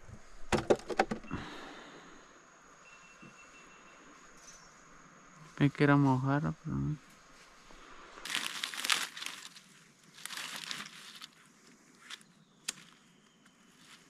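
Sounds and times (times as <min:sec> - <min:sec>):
dry brush rustling and crunching: 0:07.0 - 0:14.0
sharp snaps: 0:12.1 - 0:13.0.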